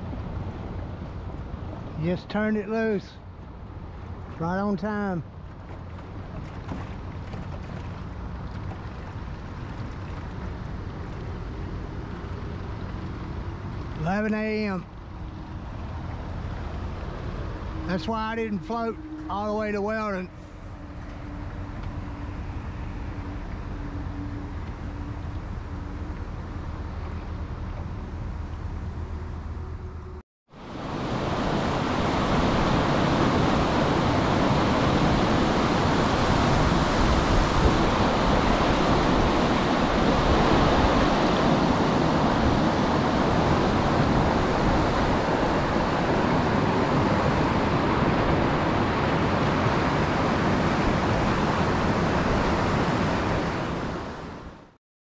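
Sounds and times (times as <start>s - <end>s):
outboard motor running: 3.2s - 19.5s
white water rushing over rapids: 30.6s - 54.4s.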